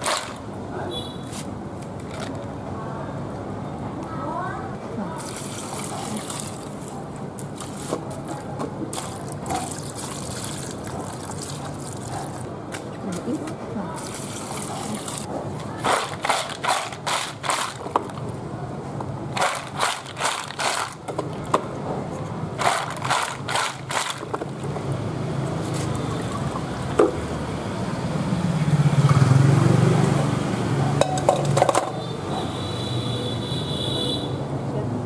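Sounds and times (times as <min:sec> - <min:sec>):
snail shells clattering in colander: 0:22.6 - 0:24.4.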